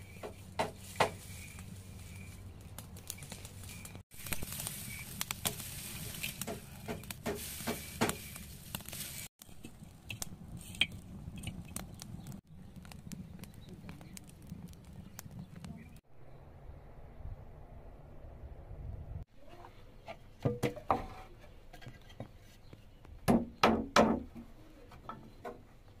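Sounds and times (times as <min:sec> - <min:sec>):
straw rustling: 0:00.0 - 0:16.0
straw and brushwood crackling: 0:00.0 - 0:16.1.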